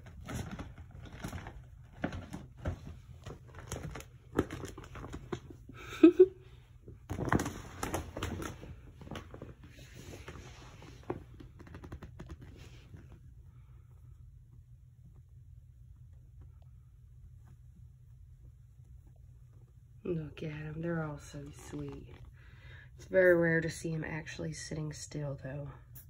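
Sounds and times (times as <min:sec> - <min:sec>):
crinkly plastic crackling: 0:00.0 - 0:05.6, 0:07.0 - 0:13.1.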